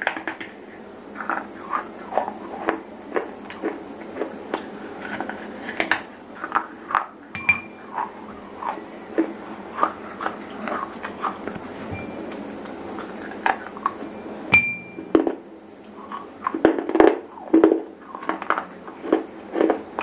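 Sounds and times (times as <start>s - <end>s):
crisp chewing crunches: 0.0s - 7.2s, 7.8s - 11.8s, 15.2s - 20.0s.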